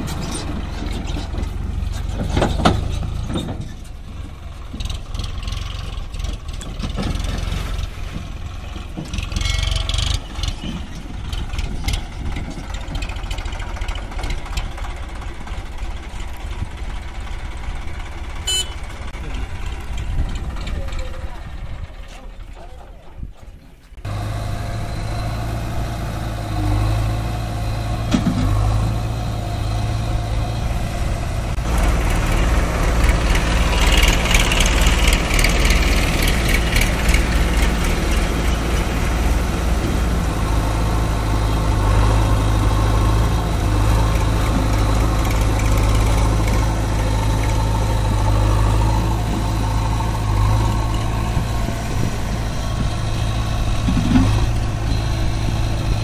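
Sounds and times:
tractor diesel engine idling: 0.0 - 23.3, 23.9 - 56.0.

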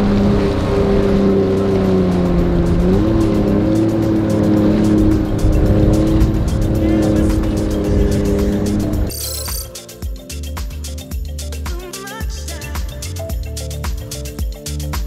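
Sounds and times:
water rushing along hull: 0.0 - 9.2
outboard motors droning: 0.0 - 9.8.

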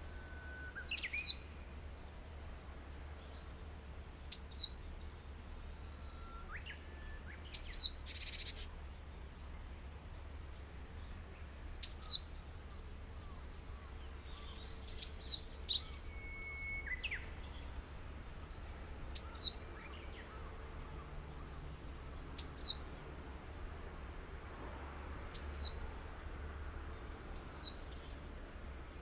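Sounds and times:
bird calling high paired notes: 0.0 - 1.5, 13.2 - 17.6.

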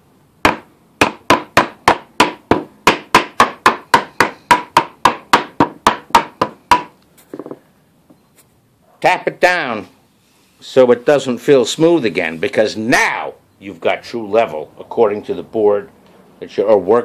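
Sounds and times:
rubber mallet striking wood: 0.4 - 7.6.

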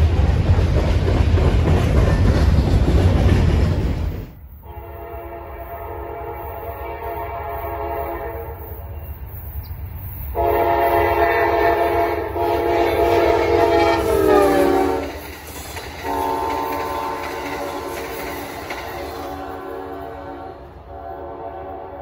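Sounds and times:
train rumble: 0.0 - 22.0
locomotive air horn blasts: 4.6 - 9.0, 10.3 - 15.2, 16.0 - 18.2, 19.2 - 22.0.

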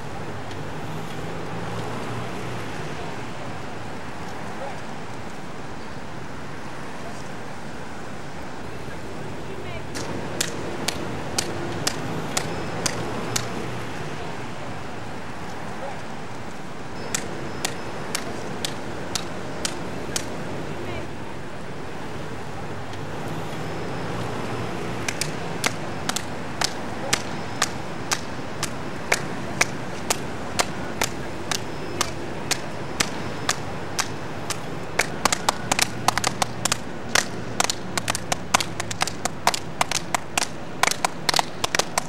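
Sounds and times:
murmur of voices: 8.5 - 24.0, 24.6 - 42.0
hand claps: 10.0 - 13.6, 17.0 - 20.4, 25.0 - 42.0.

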